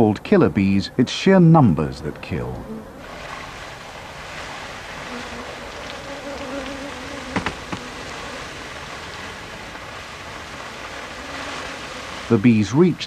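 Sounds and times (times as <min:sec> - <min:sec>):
swarm of bees buzzing: 0:02.6 - 0:12.6.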